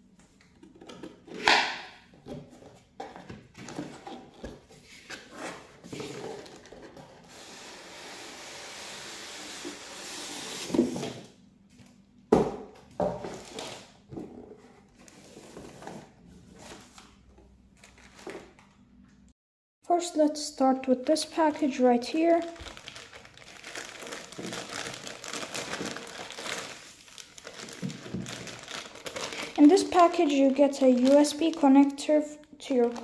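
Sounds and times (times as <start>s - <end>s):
cardboard and plastic rustling: 2.2s - 7.5s, 12.9s - 18.8s, 21.0s - 33.0s.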